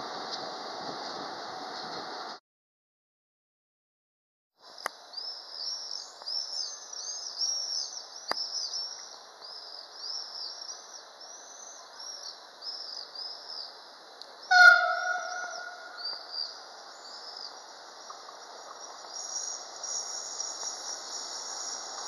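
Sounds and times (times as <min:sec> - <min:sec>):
steady background hiss: 0:04.6 - 0:22.0
birds chirping: 0:05.0 - 0:22.0
train horn blast: 0:14.5 - 0:16.0.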